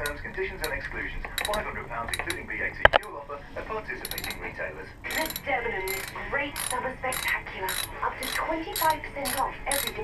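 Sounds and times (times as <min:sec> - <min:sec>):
tools and parts clicking and rattling: 0:00.0 - 0:00.8, 0:01.4 - 0:03.0, 0:04.0 - 0:04.4, 0:05.1 - 0:10.0
person talking: 0:01.4 - 0:03.1, 0:04.0 - 0:10.0.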